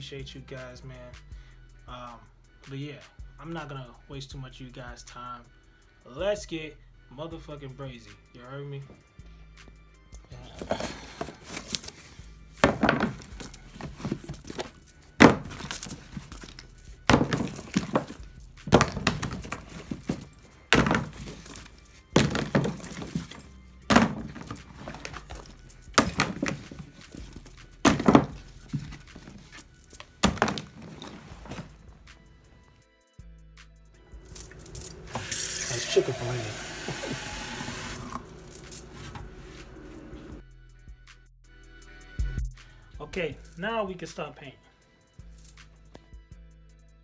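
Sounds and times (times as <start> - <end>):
background music: 0.0 - 47.0
bottles knocking on floor: 12.6 - 16.2, 17.1 - 29.5, 30.2 - 31.7.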